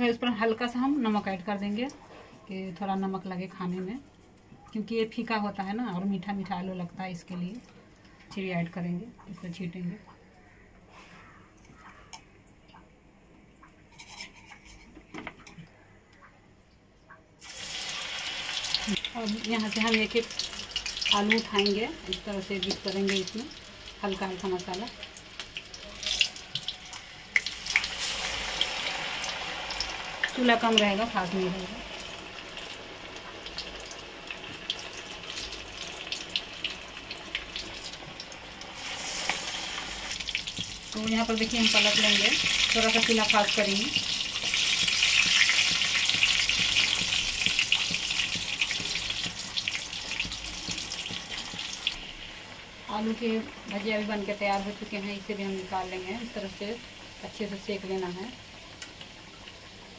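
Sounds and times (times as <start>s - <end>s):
hot oil sizzling: 17.4s - 59.9s.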